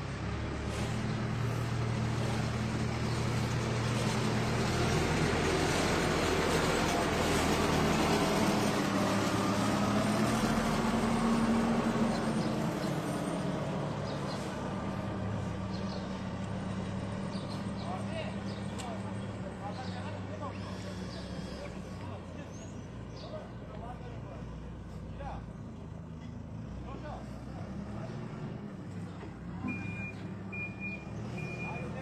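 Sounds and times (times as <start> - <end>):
backhoe loader diesel engine: 0.0 - 32.0.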